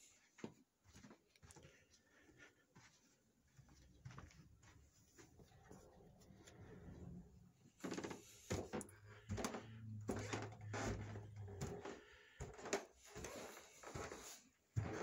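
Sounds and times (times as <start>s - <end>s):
footsteps on carpeted stairs: 0.0s - 15.0s.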